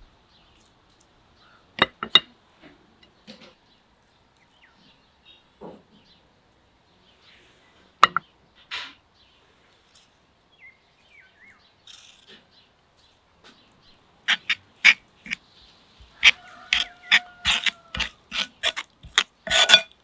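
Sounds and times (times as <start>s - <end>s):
faint bird chirps: 10.6s - 14.5s
metal spoon clinking on ceramic bowl: 19.1s - 20.0s.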